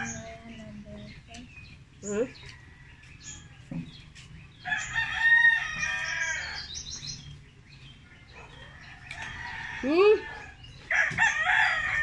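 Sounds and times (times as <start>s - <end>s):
rooster crowing: 4.7s - 6.7s, 9.1s - 12.0s.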